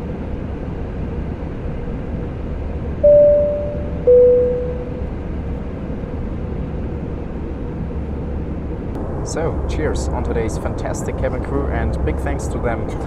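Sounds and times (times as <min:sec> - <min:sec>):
airliner cabin hum: 0:00.1 - 0:13.0
two-tone cabin chime: 0:03.0 - 0:05.1.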